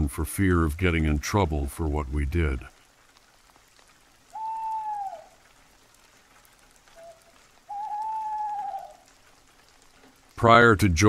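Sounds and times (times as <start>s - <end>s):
light rain: 0.0s - 11.0s
owl hooting: 4.3s - 5.4s, 6.9s - 9.1s.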